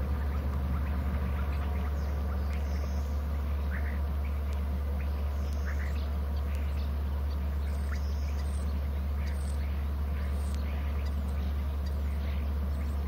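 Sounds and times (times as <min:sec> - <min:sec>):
short bird calls: 0:00.0 - 0:13.0
steady low hum: 0:00.0 - 0:13.0.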